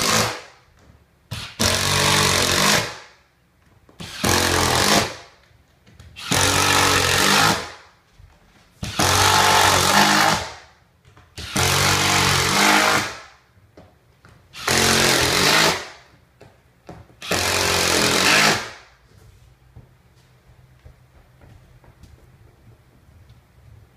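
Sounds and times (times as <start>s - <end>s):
power driver driving screws: 11.4s - 13.2s, 14.6s - 15.9s, 17.2s - 18.8s.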